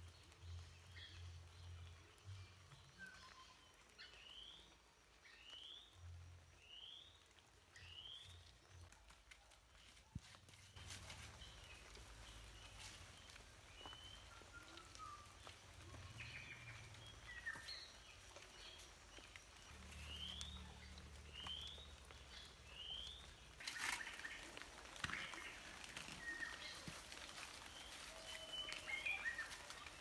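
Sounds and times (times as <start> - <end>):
birds chirping: 10.7 - 30.0.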